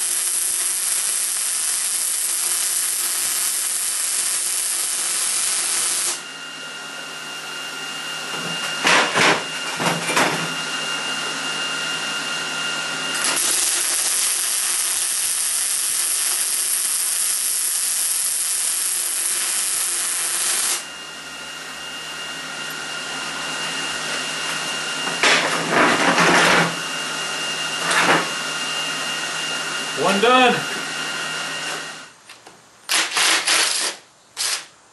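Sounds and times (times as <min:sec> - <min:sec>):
welder arc crackling and hissing: 0:00.0 - 0:06.2, 0:13.1 - 0:20.9, 0:32.9 - 0:34.8
steady whine: 0:06.1 - 0:32.2.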